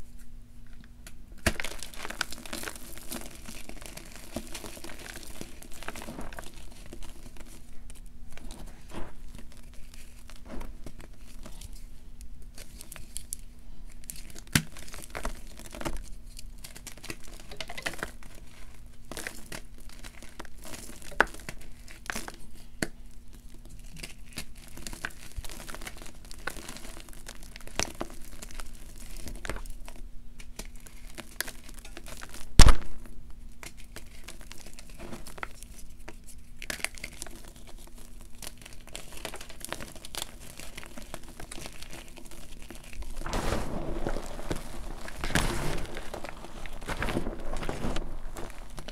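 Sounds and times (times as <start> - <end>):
sharp loud crack: 32.6 - 33.0
chalk crunching and crackling: 33.6 - 48.9.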